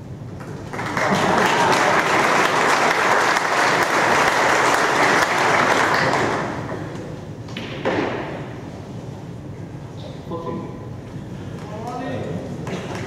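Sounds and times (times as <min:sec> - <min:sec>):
audience applauding: 0:00.4 - 0:06.7
cue striking snooker ball: 0:07.5 - 0:08.6.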